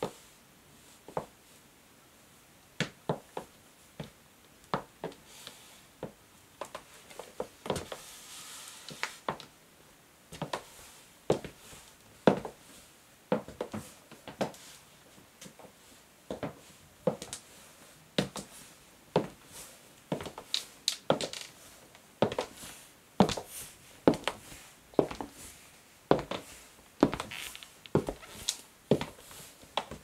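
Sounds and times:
high heels clicking on wooden floor: 0:27.0 - 0:29.2.

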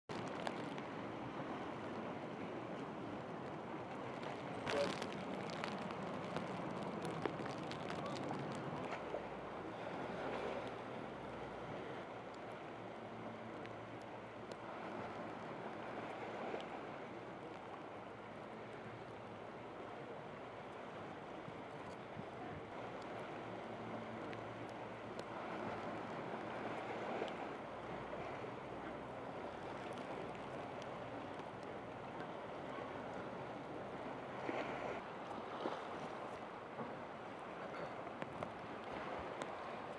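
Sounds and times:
wind: 0:00.0 - 0:39.9
water washing over wharf: 0:00.1 - 0:12.8.

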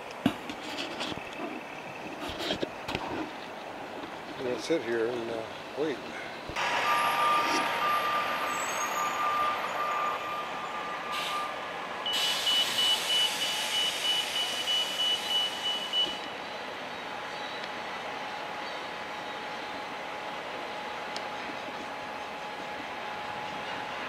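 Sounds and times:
street traffic: 0:00.0 - 0:24.0
electronic beeping: 0:06.6 - 0:16.3
passing vehicle hiss: 0:06.6 - 0:16.3.

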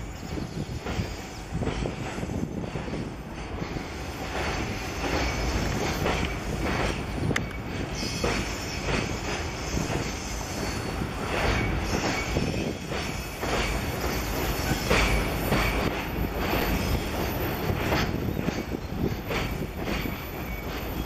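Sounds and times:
low rumble of train: 0:00.0 - 0:21.0
train wheels clacking over rail joints: 0:00.2 - 0:21.0
wheel squeals: 0:11.5 - 0:15.9.

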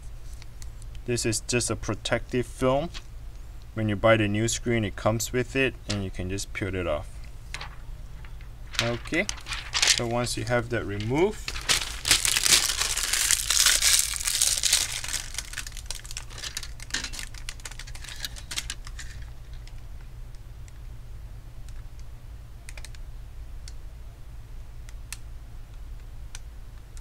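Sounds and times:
plastic film crinkling: 0:07.5 - 0:19.8.

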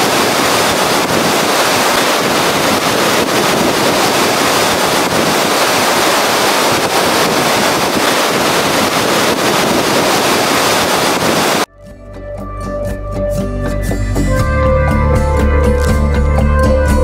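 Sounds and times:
waterfall rushing: 0:00.0 - 0:11.7
soft music with sustained notes: 0:11.7 - 0:17.0.

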